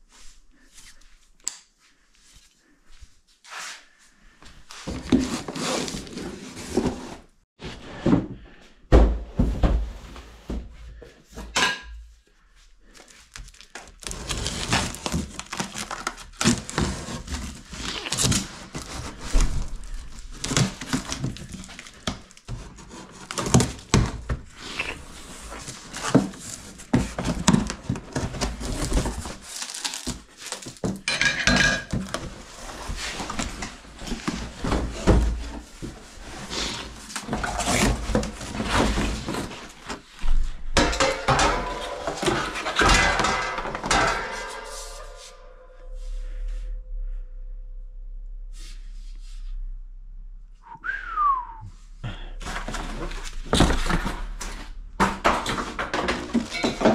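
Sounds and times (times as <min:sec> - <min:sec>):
cardboard and tape tearing: 0:13.4 - 0:30.9.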